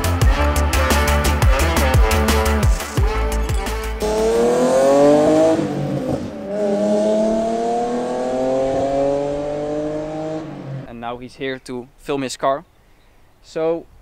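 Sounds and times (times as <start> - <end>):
car engine accelerating hard: 1.6 - 10.9.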